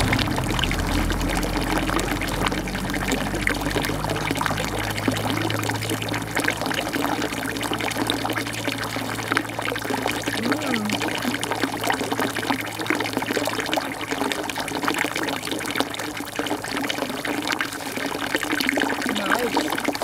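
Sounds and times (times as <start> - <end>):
steady rushing noise: 0.0 - 7.0.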